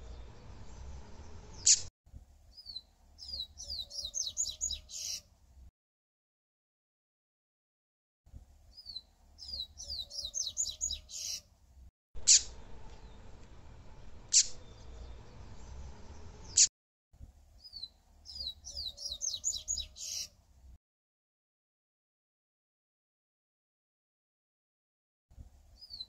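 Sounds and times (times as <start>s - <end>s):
bird song phrase: 2.5s - 5.3s, 8.7s - 11.4s, 14.0s - 16.7s, 17.6s - 20.3s, 25.8s - 26.0s.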